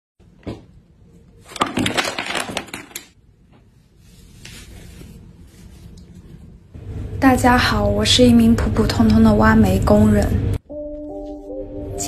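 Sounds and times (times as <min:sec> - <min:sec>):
makeup containers clattering: 0:01.5 - 0:03.1
cloth rustle: 0:03.7 - 0:06.5.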